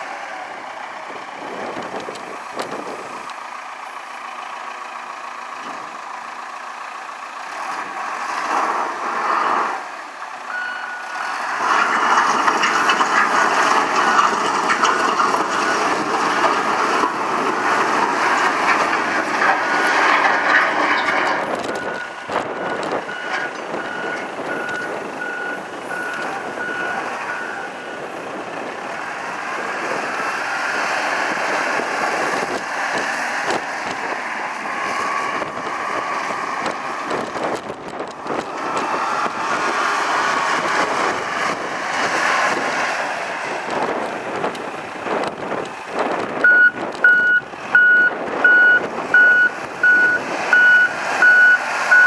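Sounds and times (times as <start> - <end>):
diesel engine running: 0.0 - 52.0
reverse alarm beeping: 10.5 - 11.0, 46.5 - 52.0.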